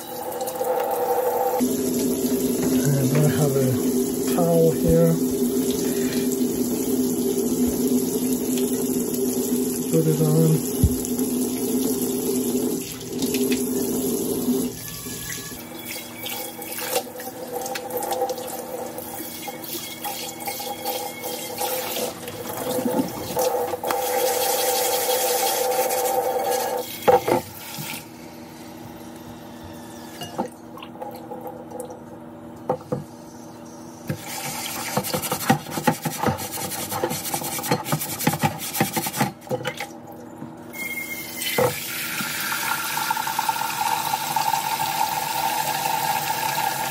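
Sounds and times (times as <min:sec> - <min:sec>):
tap water running into sink: 0:00.0 - 0:28.1, 0:34.1 - 0:39.9, 0:41.3 - 0:46.9.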